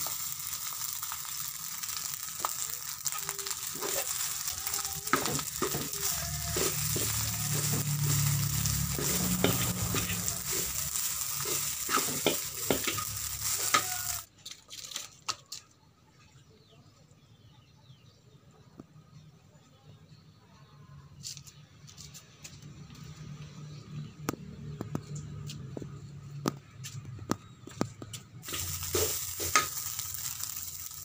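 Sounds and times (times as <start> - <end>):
metal spatula scraping wok: 0.0 - 14.3, 28.4 - 31.0
rice sizzling in wok: 0.0 - 14.3, 28.4 - 31.0.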